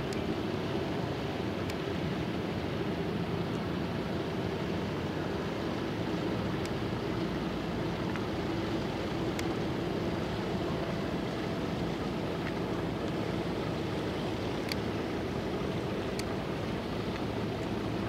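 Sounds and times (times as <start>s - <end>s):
sea: 0.0s - 18.0s
ship engine drone: 0.0s - 18.0s
wind: 0.0s - 18.0s
faint ticks: 9.3s - 9.6s, 14.5s - 14.9s, 16.0s - 16.4s, 17.0s - 17.8s.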